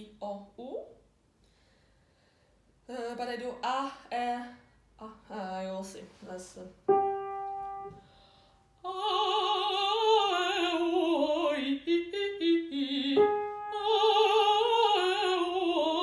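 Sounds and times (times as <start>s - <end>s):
piano note: 6.8s - 8.5s
woman singing with vibrato: 8.8s - 16.0s.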